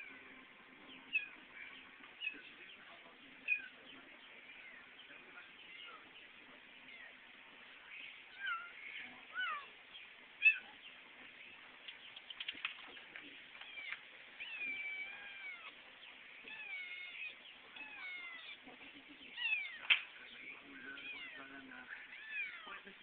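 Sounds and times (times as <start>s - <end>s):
small clicks: 11.8s - 14.0s
kitten meowing: 13.6s - 15.8s, 16.4s - 18.6s, 21.0s - 21.4s, 22.1s - 22.7s.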